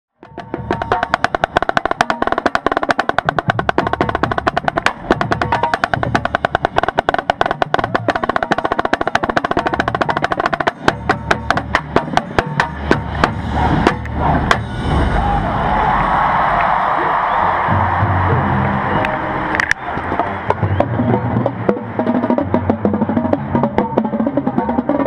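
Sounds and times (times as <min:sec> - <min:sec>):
snare drum rolls and hits: 0:00.6 - 0:15.0.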